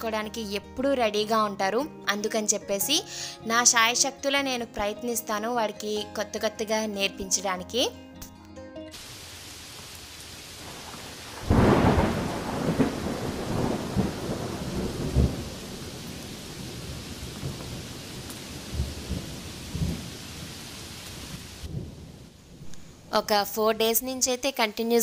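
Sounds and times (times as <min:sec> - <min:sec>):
steady rain hiss: 0:08.9 - 0:24.6
thunder rumbling: 0:10.5 - 0:23.3.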